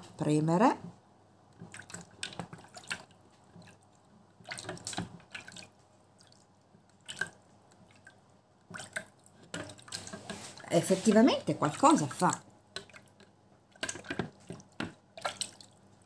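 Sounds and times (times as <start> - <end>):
wet splashes and drips: 1.6 - 3.8, 4.4 - 16.0.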